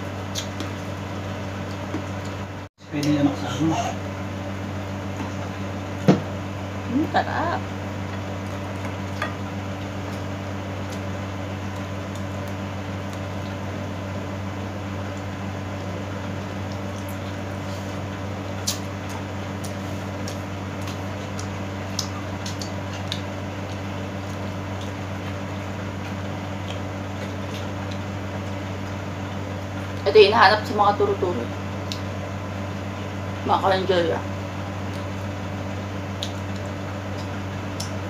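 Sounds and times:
steady low hum: 0:00.0 - 0:38.0
person chewing: 0:00.3 - 0:01.0, 0:08.1 - 0:13.8, 0:16.3 - 0:29.0, 0:31.8 - 0:32.2, 0:34.6 - 0:35.3, 0:36.0 - 0:38.0.

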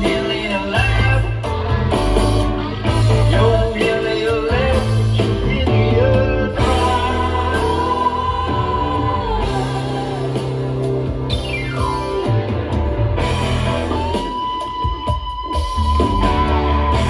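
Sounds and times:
sung vocals: 0:00.0 - 0:11.3
live rock band playing: 0:00.0 - 0:17.0.

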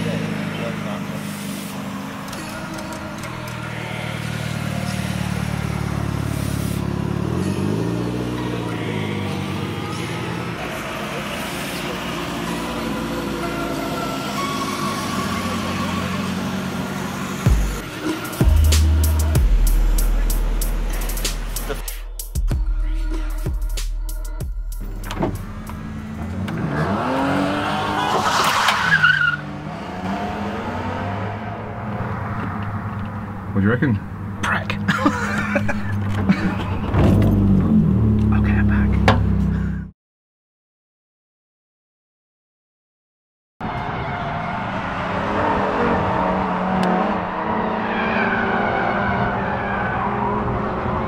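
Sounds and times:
car engine accelerating: 0:00.0 - 0:22.1, 0:24.8 - 0:39.8, 0:43.6 - 0:51.0
tyre squeal: 0:27.9 - 0:29.5.

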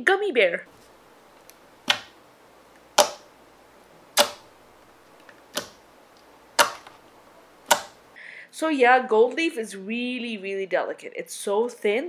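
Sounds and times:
sharp clicks: 0:01.4 - 0:02.2, 0:02.8 - 0:03.3, 0:04.1 - 0:07.0, 0:07.6 - 0:08.1.

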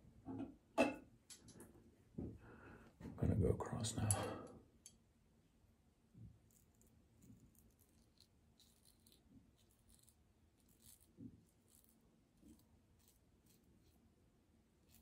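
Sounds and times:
razor scraping stubble: 0:06.4 - 0:14.0.

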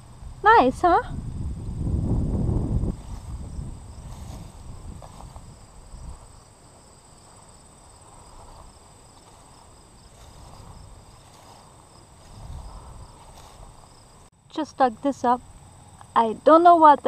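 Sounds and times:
low rumble: 0:00.0 - 0:06.3
insects chirping in grass: 0:00.0 - 0:17.0.

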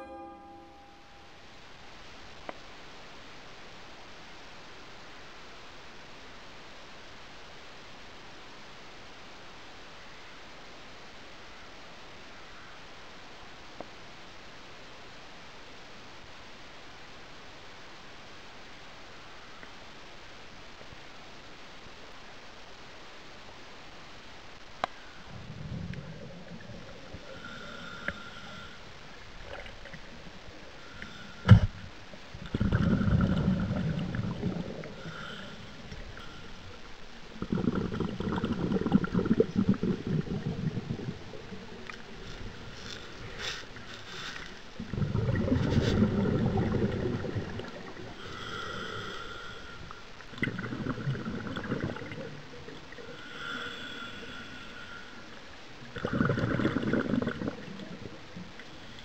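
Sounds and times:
regulator inhale hiss: 0:24.8 - 0:46.7, 0:47.3 - 0:50.8, 0:52.8 - 0:55.6, 0:57.7 - 0:59.0
diver's exhaled bubbles rumbling: 0:25.3 - 0:28.4, 0:29.1 - 0:49.1, 0:49.8 - 0:53.2, 0:55.9 - 0:58.6.

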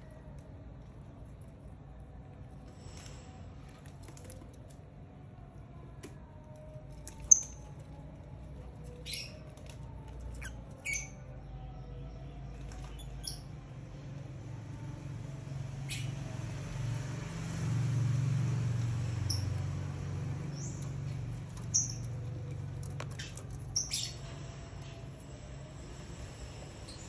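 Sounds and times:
low steady hum: 0:00.0 - 0:27.0
birds chirping and squeaking: 0:07.2 - 0:07.8, 0:08.8 - 0:13.6, 0:15.8 - 0:16.2, 0:19.2 - 0:19.6, 0:20.4 - 0:25.0.

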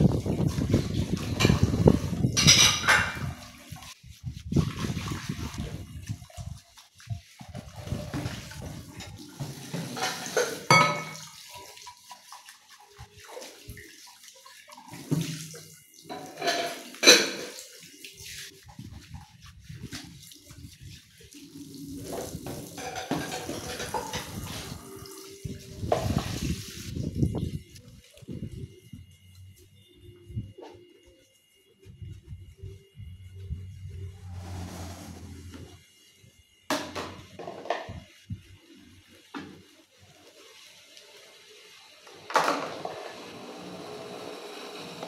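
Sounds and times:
tap water running into sink: 0:04.6 - 0:18.3, 0:21.2 - 0:26.6.

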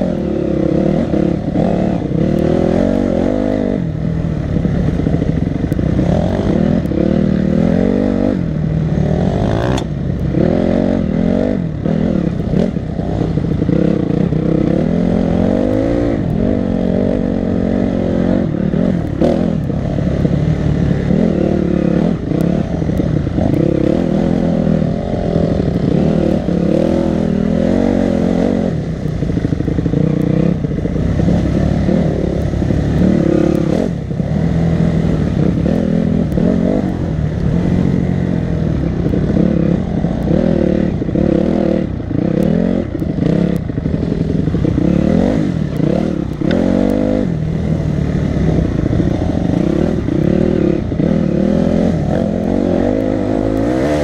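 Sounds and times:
dirt bike engine revving: 0:00.0 - 0:54.0.

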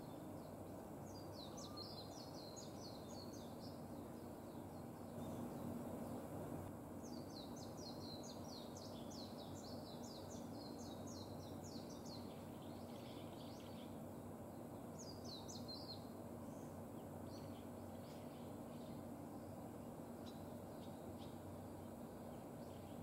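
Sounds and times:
low background noise: 0:00.0 - 0:23.0
bird twittering: 0:01.1 - 0:03.7.

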